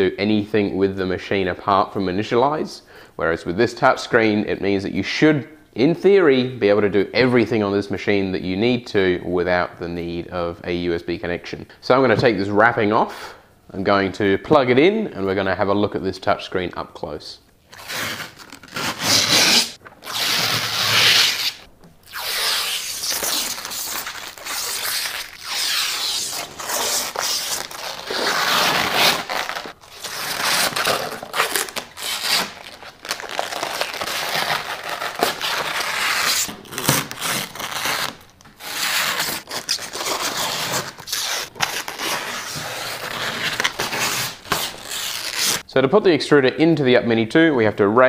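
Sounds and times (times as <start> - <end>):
plastic film peeling: 17.7 - 45.6.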